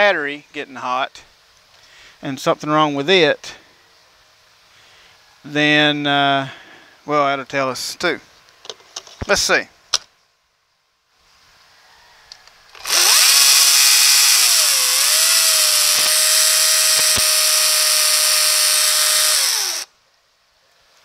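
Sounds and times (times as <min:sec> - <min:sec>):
battery chainsaw whining: 0:12.7 - 0:19.9.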